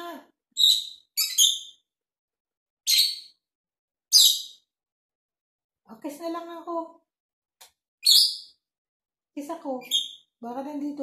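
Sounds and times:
parrot chirping: 0.6s - 1.9s, 2.8s - 3.4s, 4.1s - 4.7s, 8.0s - 8.6s, 9.8s - 10.3s.

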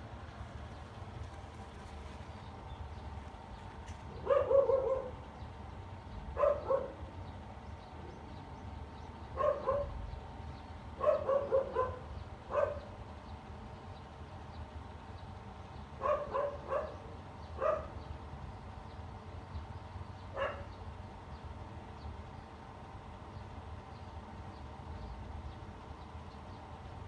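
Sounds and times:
dog barking: 4.2s - 5.2s, 6.4s - 7.0s, 9.4s - 10.0s, 11.0s - 13.0s, 16.0s - 18.0s, 20.3s - 20.8s.

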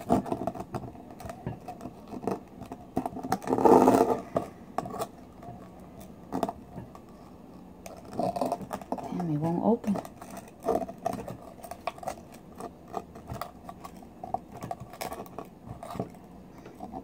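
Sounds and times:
knife scraping oyster shell: 7.9s - 16.2s.

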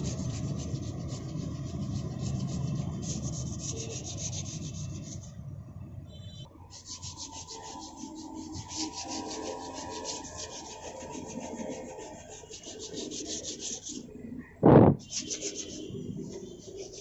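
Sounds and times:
sandpaper rasping on car bumper: 0.0s - 5.4s, 6.6s - 14.1s, 15.0s - 17.0s.

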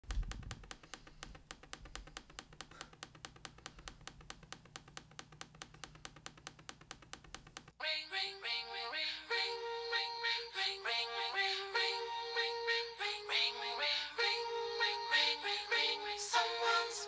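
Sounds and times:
laptop trackpad clicking: 0.0s - 7.8s.

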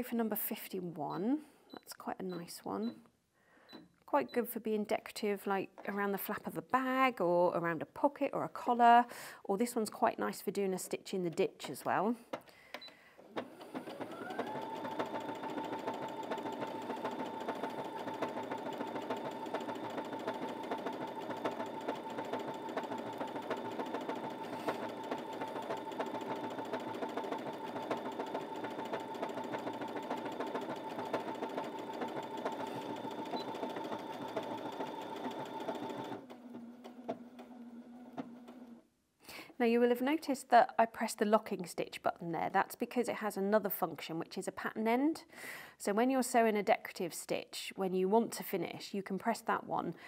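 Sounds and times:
sewing machine motor whine: 13.4s - 38.7s.

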